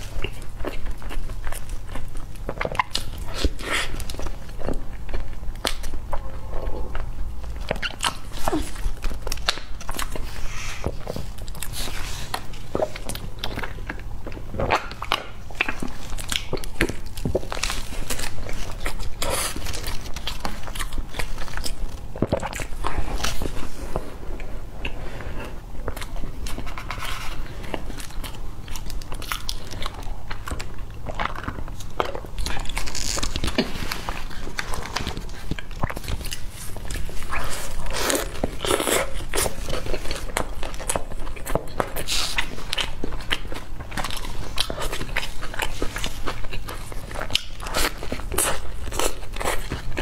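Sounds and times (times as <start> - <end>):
person chewing pastry: 0.0 - 50.0.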